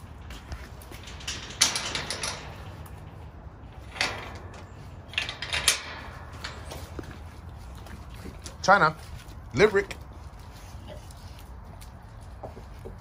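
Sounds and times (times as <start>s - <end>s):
metal gate rattling: 0.0s - 7.6s.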